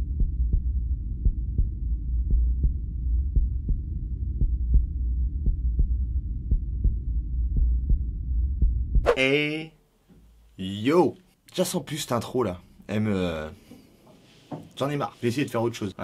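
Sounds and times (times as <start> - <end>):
deep low rumble: 0.0 - 9.1.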